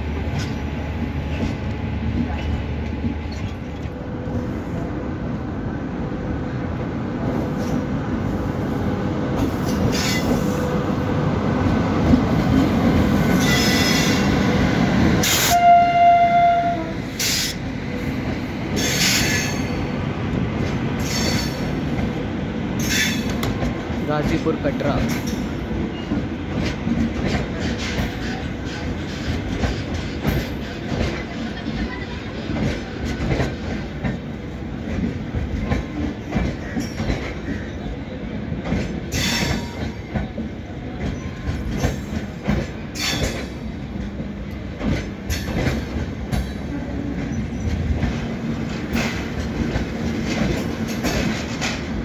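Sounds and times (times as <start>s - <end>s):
train wheels clacking over rail joints: 22.8s - 37.9s, 38.5s - 52.0s.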